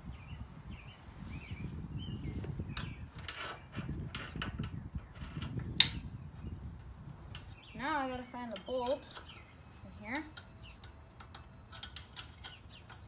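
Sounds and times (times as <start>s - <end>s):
birds chirping faintly: 0.0s - 13.0s.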